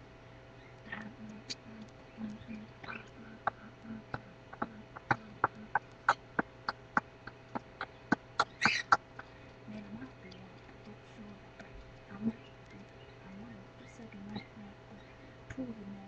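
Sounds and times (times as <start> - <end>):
steady beat of sharp clicks: 1.8 - 11.0.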